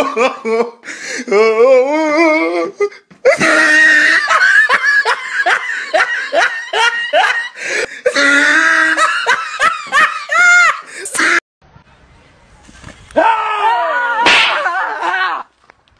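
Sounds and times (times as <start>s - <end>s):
person laughing hard: 3.2s - 11.4s, 13.7s - 15.5s.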